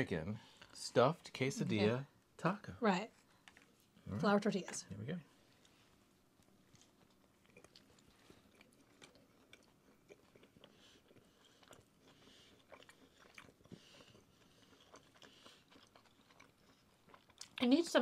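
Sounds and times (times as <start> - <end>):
people chewing crispy food: 5.4 - 18.0.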